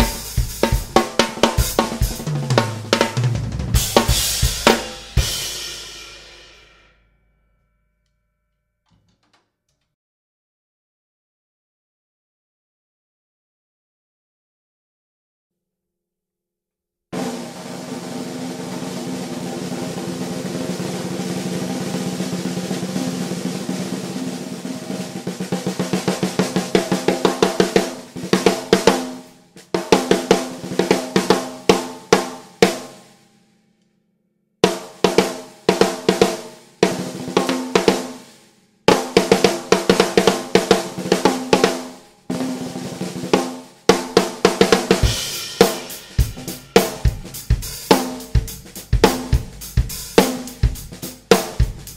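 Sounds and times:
snare drum rolls and strokes: 0:00.0 - 0:06.9, 0:17.2 - 0:33.2, 0:34.6 - 0:51.9.

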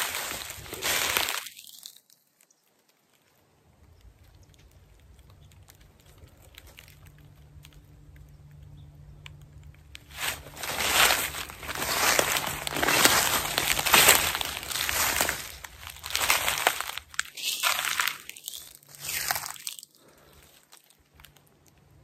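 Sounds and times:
loud rustling and crunching: 0:00.0 - 0:02.2, 0:04.0 - 0:22.0
small ticks: 0:01.4 - 0:10.1
faint low hum: 0:03.4 - 0:22.0.

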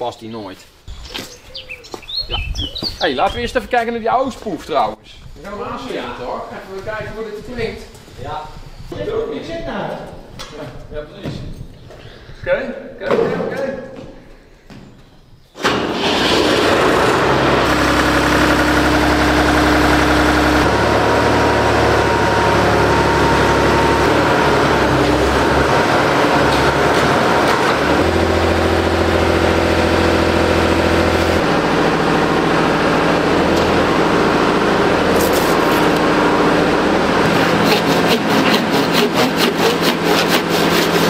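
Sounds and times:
engine running loudly: 0:15.9 - 0:41.0.

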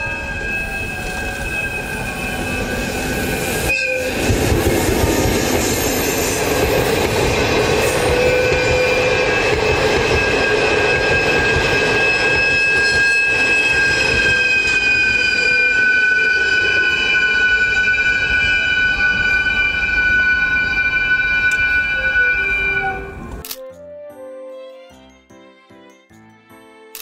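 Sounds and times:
high-pitched wheel squeal: 0:00.0 - 0:04.4, 0:07.9 - 0:23.3
train rolling rumble: 0:00.0 - 0:23.4.

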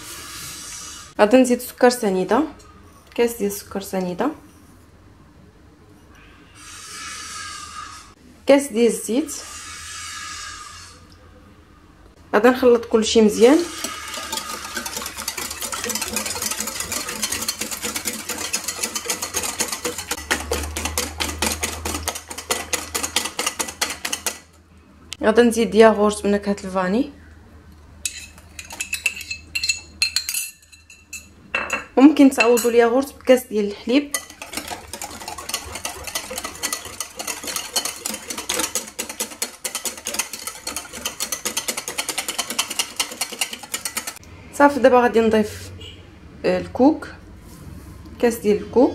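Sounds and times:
wire whisk clicking against glass bowl: 0:13.8 - 0:24.4, 0:34.1 - 0:44.2.

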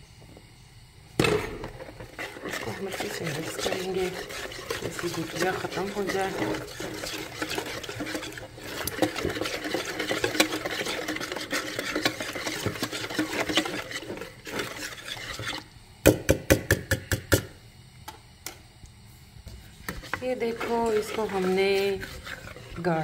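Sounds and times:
whisk beating batter in bowl: 0:01.6 - 0:15.7, 0:19.5 - 0:23.0.

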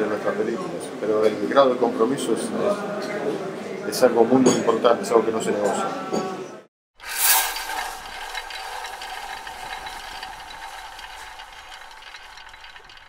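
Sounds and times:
film projector rattling: 0:07.0 - 0:13.0.

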